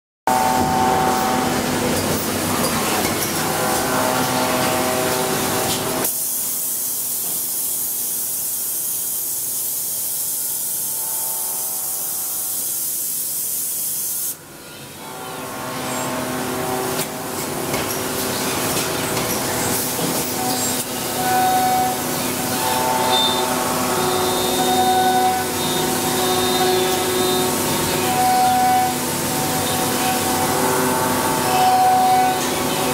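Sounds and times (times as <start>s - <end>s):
machine mechanical hum: 0.3s - 32.9s
loud hiss of spraying air: 6.0s - 10.9s, 11.8s - 14.4s.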